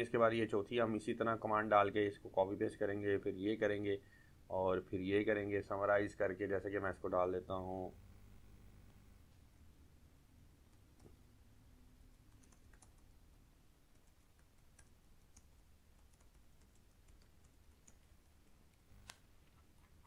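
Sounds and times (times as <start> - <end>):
computer keyboard keystrokes: 12.3 - 13.1, 13.9 - 18.1.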